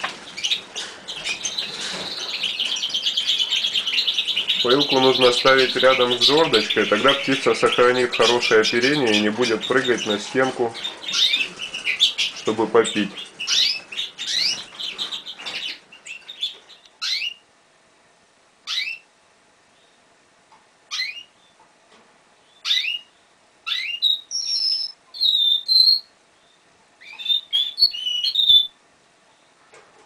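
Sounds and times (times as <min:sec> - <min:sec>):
canary chirping: 0:00.0 - 0:17.5, 0:18.6 - 0:19.1, 0:20.9 - 0:21.6, 0:22.4 - 0:29.6
canary whistling and trilling: 0:10.8 - 0:12.4, 0:13.2 - 0:17.4, 0:18.7 - 0:19.1, 0:20.9 - 0:21.3, 0:22.6 - 0:23.1, 0:23.7 - 0:26.1, 0:27.0 - 0:28.8.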